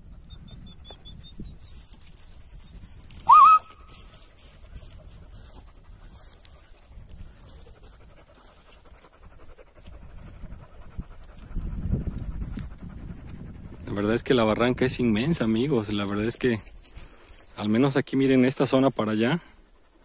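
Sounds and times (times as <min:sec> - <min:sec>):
dogs panting: 0:00.0 - 0:03.2, 0:03.8 - 0:20.0
person whistling: 0:03.2 - 0:03.8.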